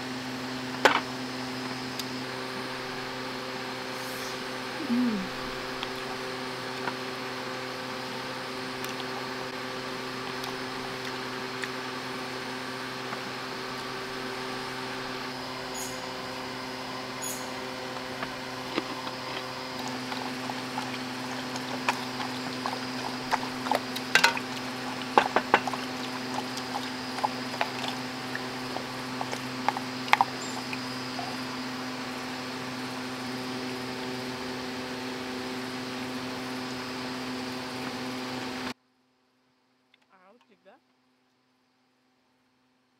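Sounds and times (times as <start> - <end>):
steady hum: 3.8 - 6.3.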